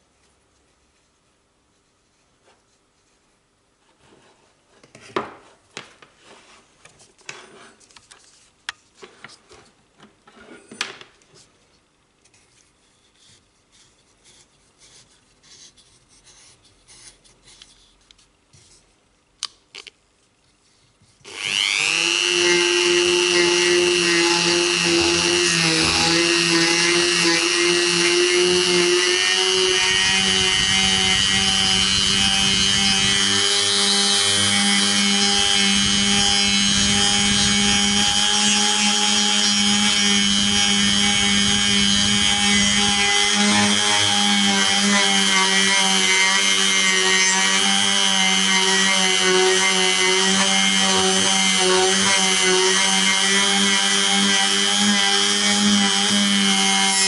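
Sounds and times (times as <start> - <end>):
rotary tool whine: 21.3 - 57.0.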